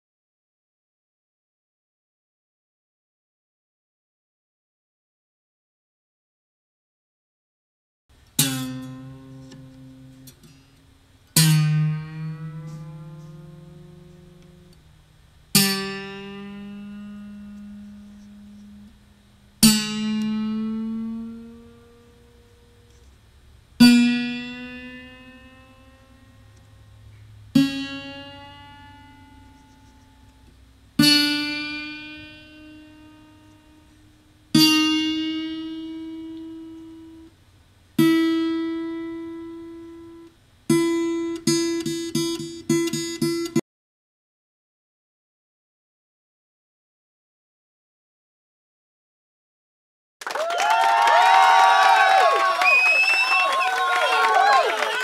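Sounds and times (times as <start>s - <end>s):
guitar string plucked rising pitch: 8.4s - 23.0s, 23.8s - 37.3s.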